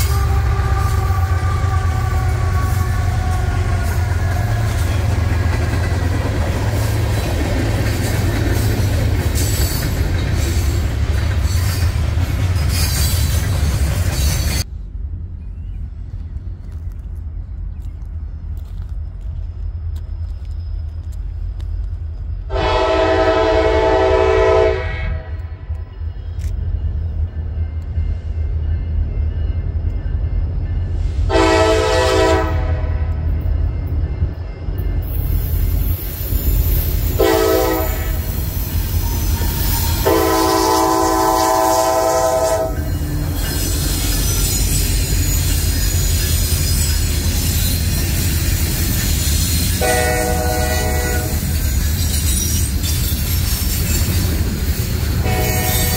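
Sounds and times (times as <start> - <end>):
train air horn blasts: 0.0 - 5.1, 22.5 - 25.7, 31.2 - 33.1, 37.1 - 43.9, 49.8 - 51.5, 55.2 - 55.9
locomotive engine rumble: 0.0 - 55.9
train wheel and rail noise: 0.0 - 55.9.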